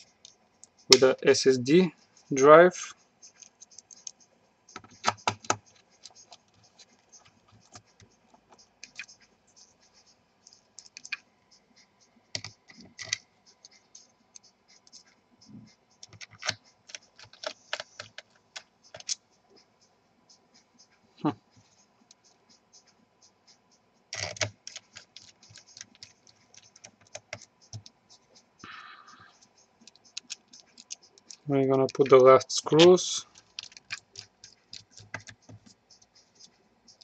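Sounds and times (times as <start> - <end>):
screwdriver clicking on metal: 29.9 - 35.4.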